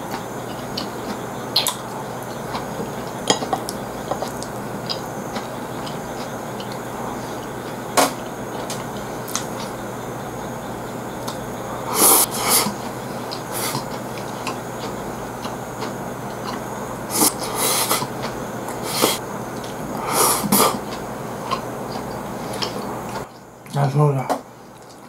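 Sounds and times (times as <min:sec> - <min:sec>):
chewing: 0:00.0 - 0:07.8, 0:08.5 - 0:09.8, 0:11.2 - 0:23.8, 0:24.7 - 0:25.0
room hum: 0:00.0 - 0:25.0
slurping and sucking: 0:11.7 - 0:14.6, 0:16.4 - 0:19.2, 0:19.9 - 0:23.2.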